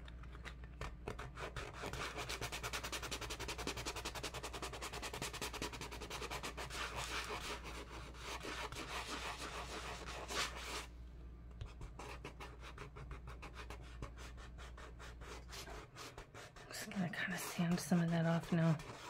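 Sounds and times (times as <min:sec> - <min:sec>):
sanding sponge scrubbing glass: 0:16.7 - 0:19.0.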